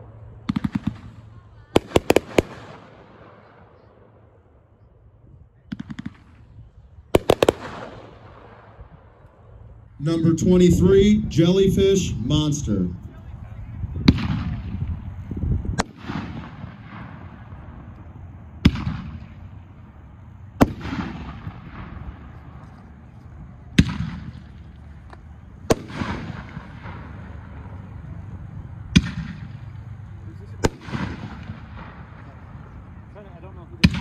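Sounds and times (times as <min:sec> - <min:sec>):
firework shells bursting: 0:01.8 - 0:03.4, 0:07.1 - 0:08.7, 0:20.6 - 0:32.8.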